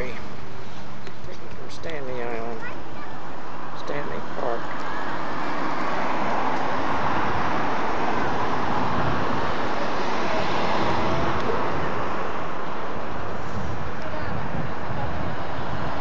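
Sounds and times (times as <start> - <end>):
wind on microphone: 3.4 - 16.0
boat engine drone: 4.2 - 16.0.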